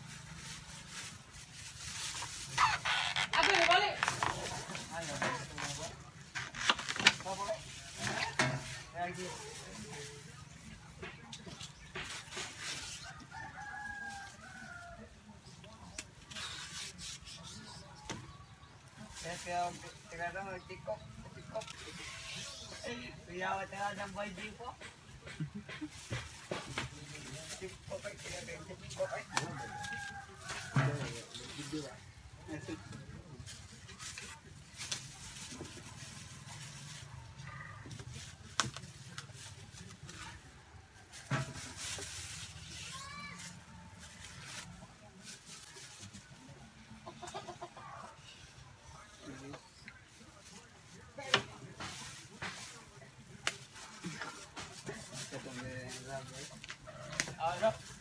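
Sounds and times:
rustling and crisp snapping: 0.5s - 10.2s, 33.4s - 37.1s, 51.3s - 58.0s
stalks being peeled: 0.5s - 10.2s, 15.7s - 18.2s.

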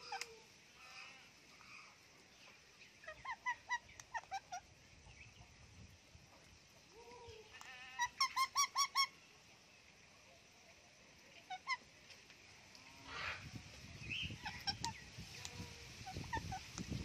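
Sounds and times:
parakeet squawking: 14.3s - 15.0s.

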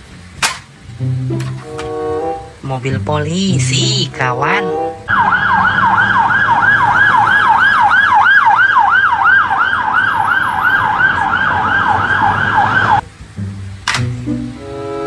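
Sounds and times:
low traffic rumble: 0.0s - 15.0s
police siren wailing: 3.9s - 13.0s.

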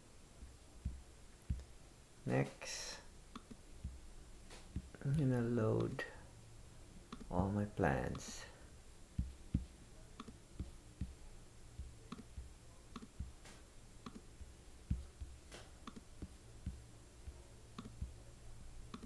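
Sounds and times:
computer mouse clicking: 7.1s - 7.3s, 9.2s - 11.2s, 11.8s - 14.3s, 14.9s - 16.8s, 17.8s - 18.2s.

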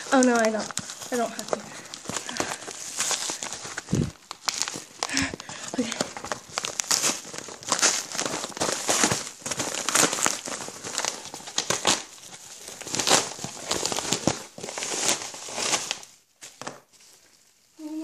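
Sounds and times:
padded envelope crinkling: 0.0s - 17.5s.

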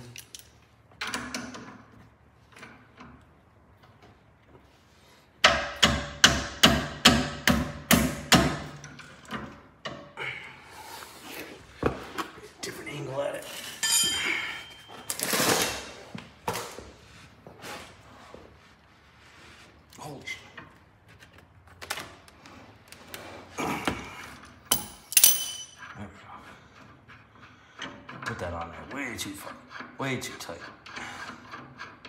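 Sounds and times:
sharp metallic knocks: 5.4s - 8.8s
tool handling noise: 11.0s - 18.4s, 23.8s - 25.9s.

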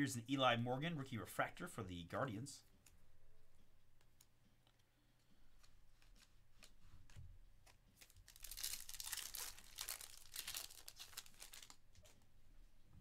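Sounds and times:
foil wrapper tearing and crumpling: 7.9s - 12.0s.

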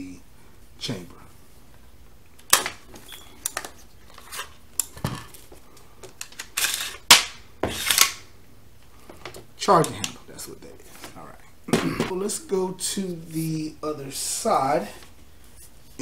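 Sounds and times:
charging handle sliding rasp: 7.6s - 8.2s.

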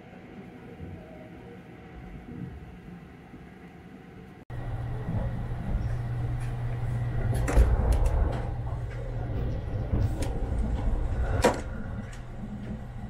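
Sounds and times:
train rumbling: 4.5s - 13.0s.

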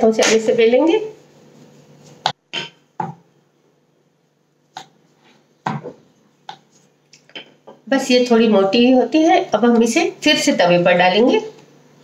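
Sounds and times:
rolling pin knocking on board: 2.2s - 3.3s.

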